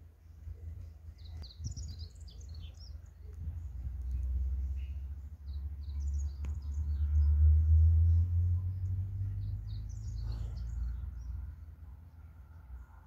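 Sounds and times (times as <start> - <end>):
small birds chirping: 0.1 - 12.8.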